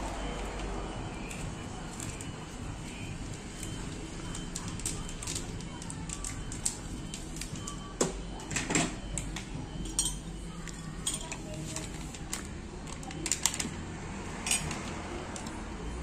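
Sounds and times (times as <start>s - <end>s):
crockery and glassware clinking: 9.8s - 10.3s.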